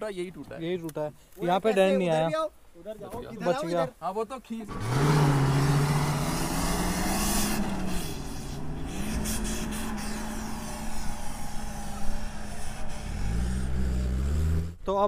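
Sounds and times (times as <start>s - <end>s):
broad rushing noise: 5.2s - 13.8s
vehicle engine running: 5.2s - 14.7s.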